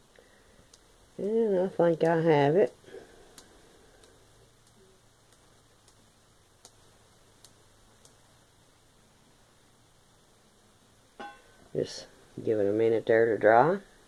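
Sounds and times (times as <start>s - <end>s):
sponge dauber dabbing ticks: 0.1s - 9.7s.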